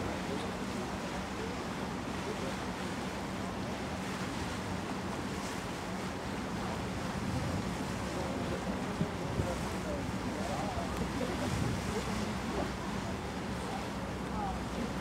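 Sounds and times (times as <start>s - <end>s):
ship machinery hum: 0.0s - 15.0s
wind and water rushing: 0.0s - 15.0s.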